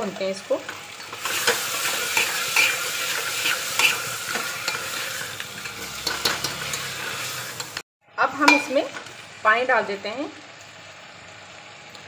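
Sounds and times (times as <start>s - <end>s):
food sizzling: 0.0s - 12.0s
metal ladle scraping a pot: 0.9s - 7.8s.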